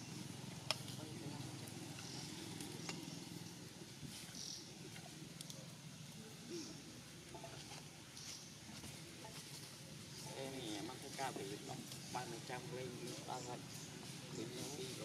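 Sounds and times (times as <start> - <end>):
soft scattered clicks: 0.5 - 3.4.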